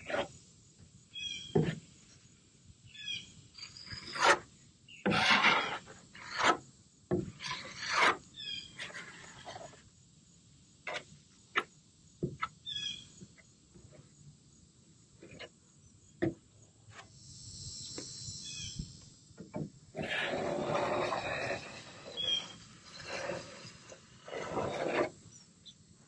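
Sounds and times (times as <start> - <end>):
spreader scraping epoxy: 3.8 - 6.6, 7.4 - 9.8, 20.0 - 25.4.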